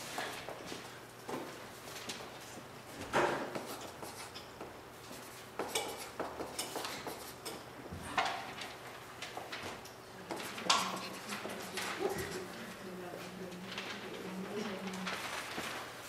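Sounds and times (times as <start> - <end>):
low room hum: 0.0 - 16.0
marker writing on paper: 3.5 - 4.4
paper rustling: 8.3 - 16.0.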